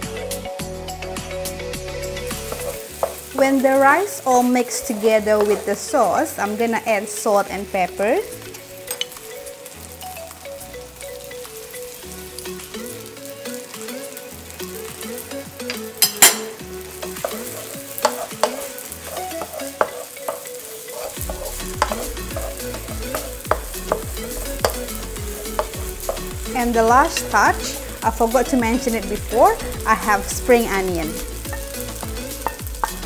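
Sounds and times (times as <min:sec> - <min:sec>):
rice sizzling in a wok: 0:00.0 - 0:33.0
spatula scraping and knocking pan: 0:02.3 - 0:03.7, 0:04.3 - 0:05.8, 0:15.7 - 0:27.5, 0:30.9 - 0:33.0.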